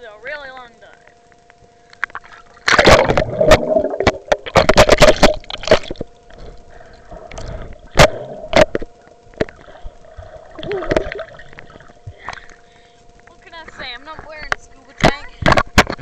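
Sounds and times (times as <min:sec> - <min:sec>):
water splashing and sloshing: 0:01.9 - 0:12.8.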